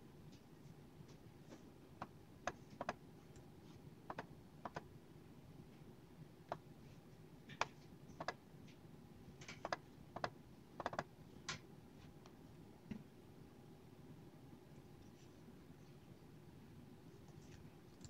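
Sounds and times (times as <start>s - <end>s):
laptop keyboard typing: 2.0s - 3.0s, 4.1s - 4.9s, 7.5s - 8.4s, 9.5s - 11.1s.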